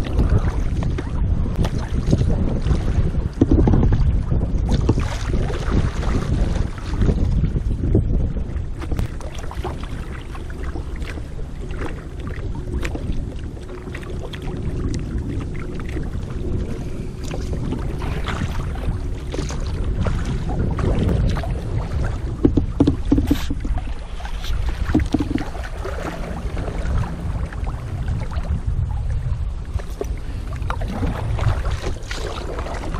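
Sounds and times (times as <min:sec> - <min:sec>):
low steady rumble: 0:00.0 - 0:32.9
water splashing against kayak hull: 0:00.0 - 0:32.9.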